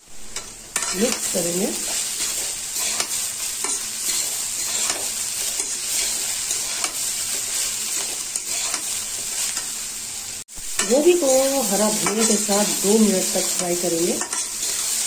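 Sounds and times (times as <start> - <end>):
stuffing sizzling in a pan: 0.0 - 15.0
spatula scraping a pan: 0.2 - 9.8, 14.2 - 15.0.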